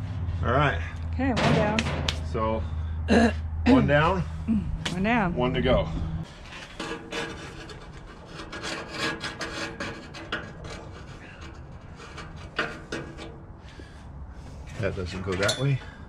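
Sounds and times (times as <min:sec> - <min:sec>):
metal grill parts scraping: 0:06.2 - 0:14.0, 0:14.7 - 0:16.0.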